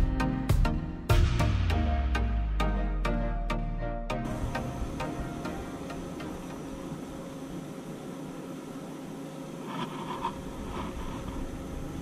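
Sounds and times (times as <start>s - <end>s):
outdoor background hiss: 4.2s - 12.0s.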